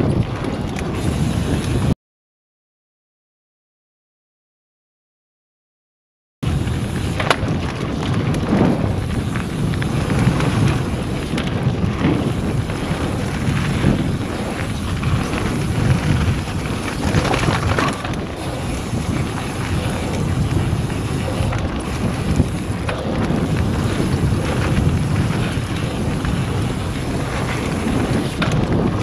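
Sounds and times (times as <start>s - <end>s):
wind buffeting microphone: 0.0s - 2.0s, 6.4s - 29.0s
tyres rumbling on gravel: 6.5s - 29.0s.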